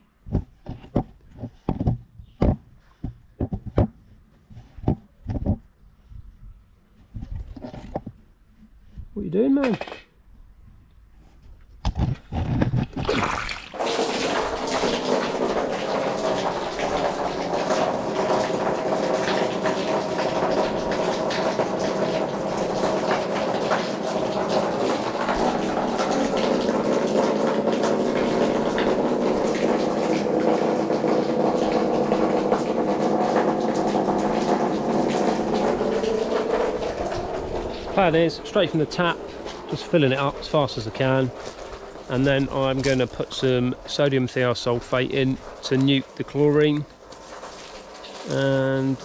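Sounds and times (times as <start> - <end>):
hose water splashing on pond liner: 12.9 - 49.0.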